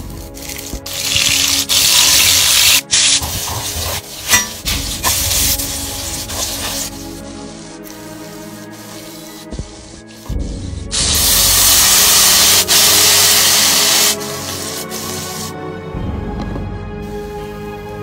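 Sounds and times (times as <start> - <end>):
hot oil sizzling: 0.3 - 7.2, 11.0 - 15.5.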